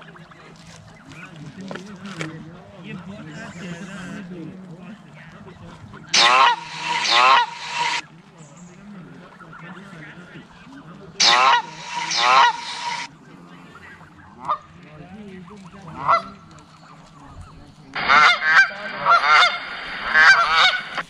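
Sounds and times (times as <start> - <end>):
recorded goose honking from phone: 6.0 - 8.0, 11.2 - 13.1, 14.4 - 14.8, 15.9 - 16.5, 18.0 - 21.0.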